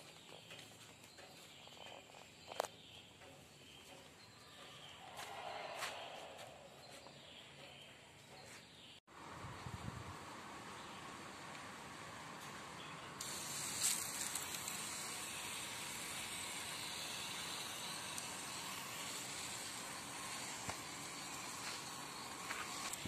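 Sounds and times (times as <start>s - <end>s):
hand sprayer hissing: 12.3s - 23.0s.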